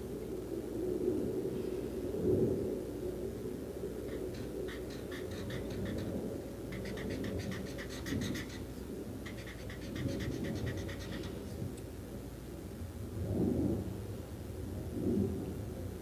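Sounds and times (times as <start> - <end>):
marker scratching across paper: 4.4 - 6.1, 6.7 - 8.6, 9.3 - 11.4.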